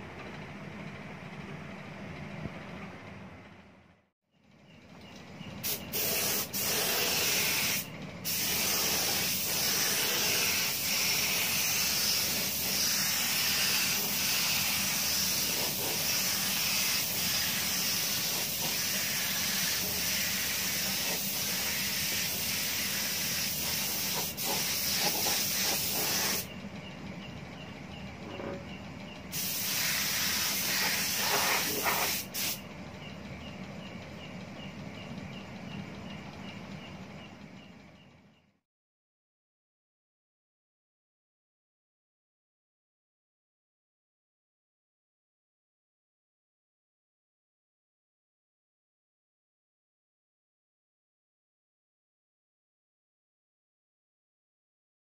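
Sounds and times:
paint spray gun hissing: 5.6s - 26.5s, 29.3s - 32.6s.

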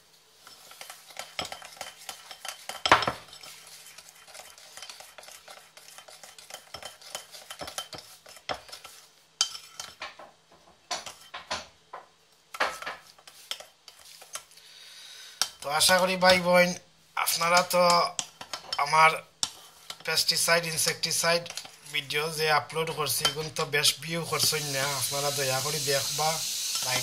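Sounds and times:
spoon scraping and clinking bowl: 0.4s - 10.2s, 11.0s - 11.5s, 12.6s - 14.6s.

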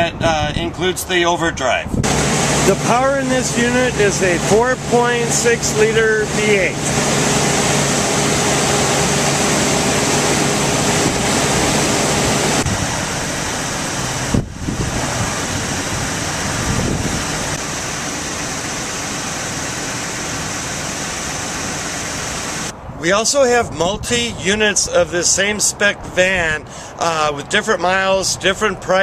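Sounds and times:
van engine idling: 2.0s - 22.7s.

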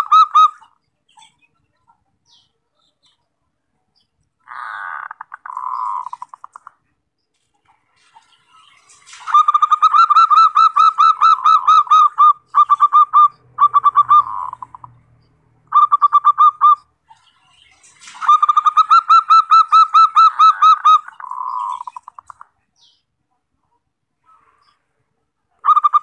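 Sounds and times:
dove cooing: 4.5s - 6.7s, 9.2s - 15.0s, 18.2s - 22.4s, 25.6s - 26.0s.

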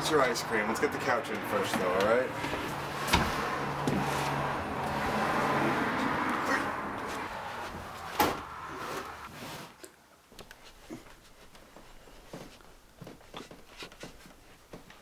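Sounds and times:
small rustles and taps: 9.8s - 15.0s.

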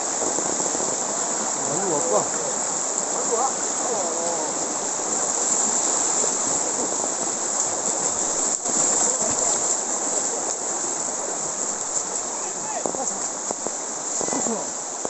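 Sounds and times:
river rushing over rocks: 0.0s - 15.0s
splashing from wading legs: 3.8s - 14.7s.

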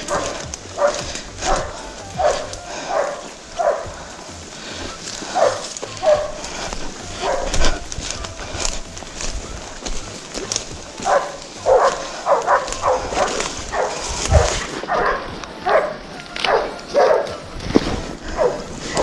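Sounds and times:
dog barking: 0.0s - 3.9s, 5.3s - 6.5s, 7.2s - 7.8s, 11.0s - 17.4s, 18.2s - 19.0s.

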